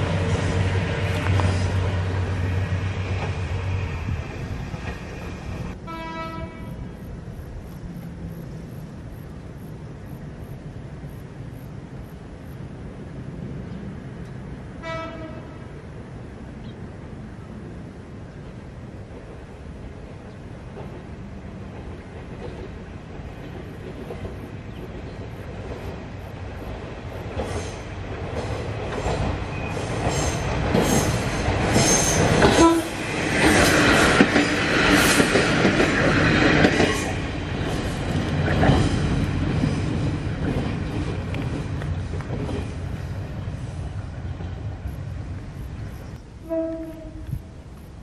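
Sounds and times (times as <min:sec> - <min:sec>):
diesel train passing: 0:00.0 - 0:48.0
wheels clicking over rail joints: 0:18.4 - 0:48.0.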